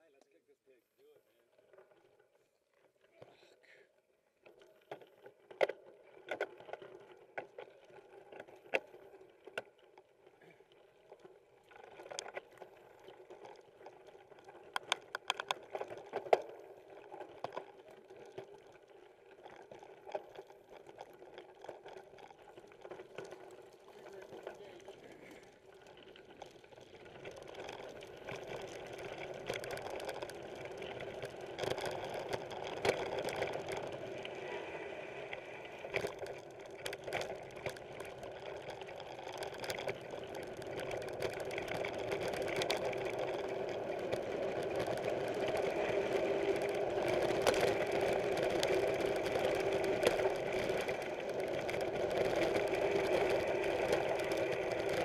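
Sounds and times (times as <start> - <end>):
bike clicks and rattles: 4.4 - 10.1, 11.7 - 34.7, 35.8 - 55.0
mountain bike mechanical buzz: 39.4 - 55.0.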